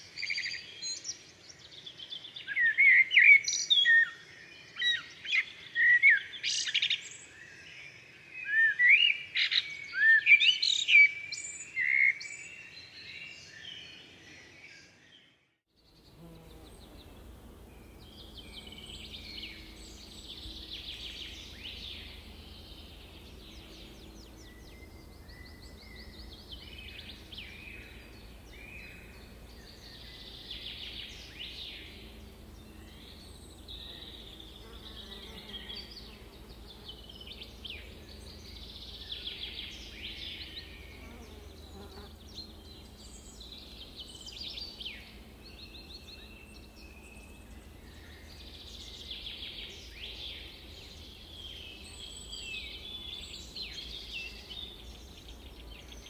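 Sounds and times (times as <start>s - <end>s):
faint low hum: 15.8s - 56.0s
insects buzzing: 15.8s - 56.0s.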